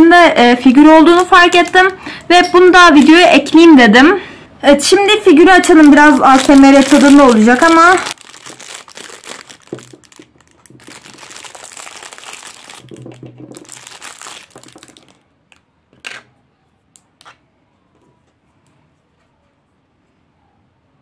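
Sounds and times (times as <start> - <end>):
plastic wrapping crinkling: 1.0 - 2.0, 5.6 - 16.2.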